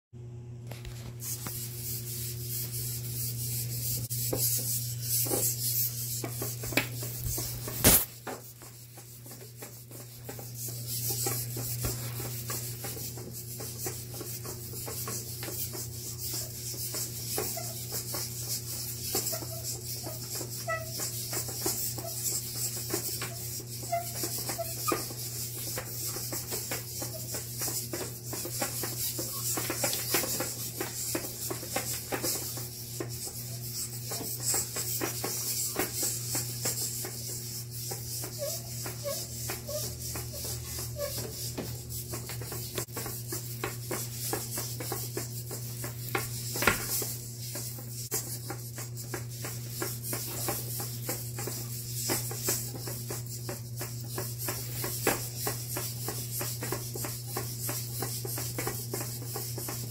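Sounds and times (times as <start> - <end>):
robot feet tapping on wooden desk: 45.8 - 47.0.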